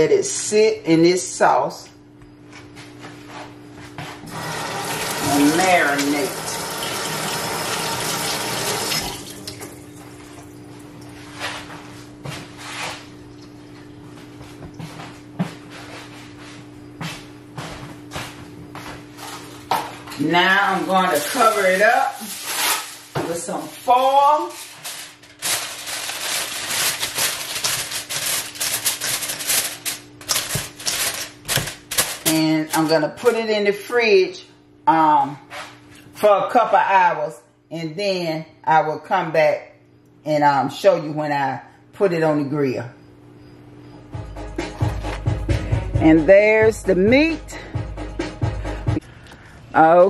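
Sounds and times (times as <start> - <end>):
faucet running into steel sink: 4.7 - 9.8
aluminium foil crinkling: 20.6 - 32.8.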